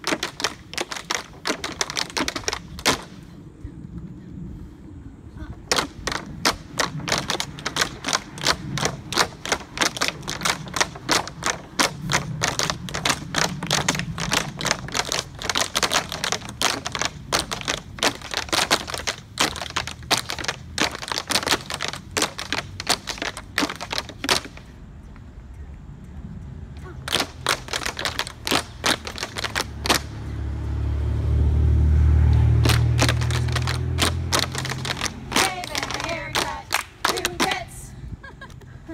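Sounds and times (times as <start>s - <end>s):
tap shoes on wooden boards: 0.0s - 3.2s, 5.7s - 24.6s, 27.0s - 30.2s, 32.4s - 37.7s.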